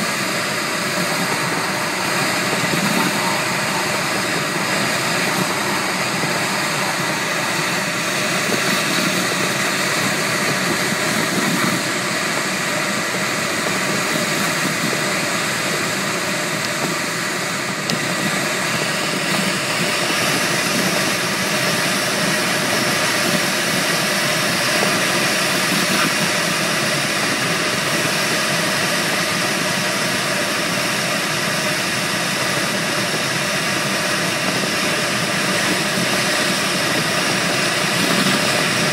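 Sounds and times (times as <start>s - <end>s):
air rushing over glider: 0.0s - 15.4s.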